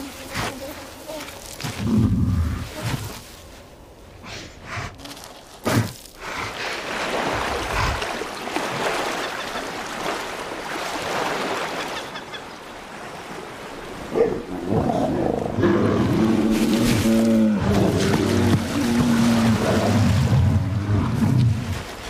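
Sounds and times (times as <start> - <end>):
water lapping on shingle: 5.0 - 12.3, 17.7 - 20.4.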